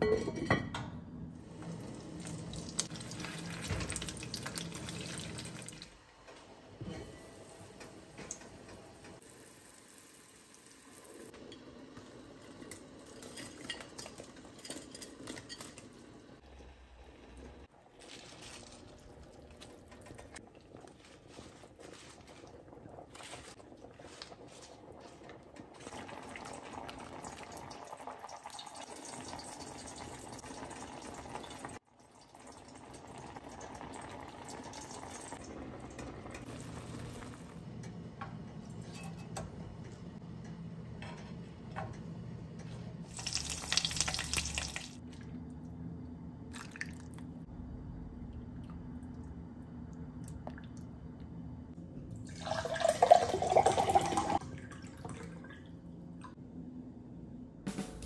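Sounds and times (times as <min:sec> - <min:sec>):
soup simmering and bubbling: 0:01.4 - 0:06.1, 0:07.4 - 0:37.6
broth pouring into a bowl: 0:43.1 - 0:45.0.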